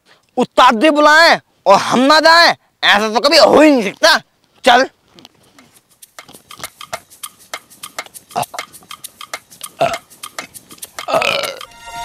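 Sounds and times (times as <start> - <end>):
footsteps through tall grass: 3.8 - 11.0.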